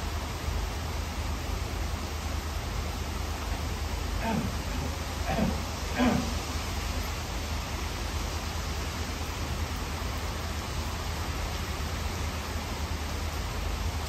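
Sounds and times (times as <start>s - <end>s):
constant low rumble: 0.0s - 14.0s
even hiss: 1.8s - 9.4s.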